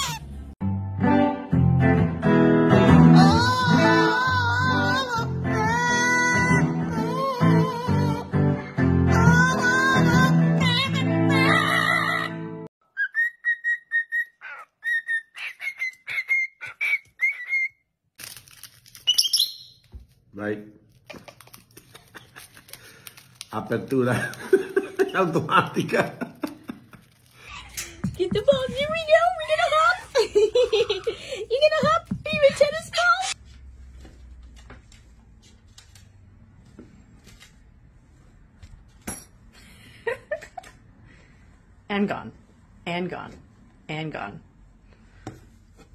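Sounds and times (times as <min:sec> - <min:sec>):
cockatiel whistling: 0:12.9 - 0:17.8, 0:19.0 - 0:19.8.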